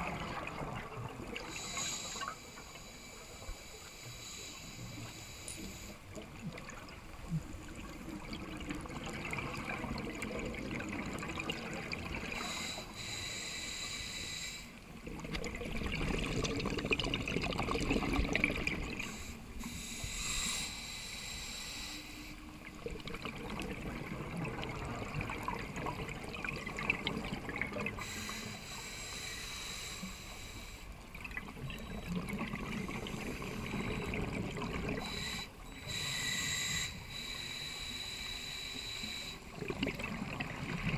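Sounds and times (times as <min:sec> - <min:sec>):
scuba regulator breathing underwater: 0:01.4 - 0:06.0, 0:12.1 - 0:14.8, 0:18.0 - 0:22.6, 0:27.9 - 0:31.0, 0:31.8 - 0:39.6
exhaled bubbles rushing: 0:15.0 - 0:19.0, 0:22.7 - 0:28.0, 0:31.1 - 0:35.0, 0:39.5 - 0:40.9.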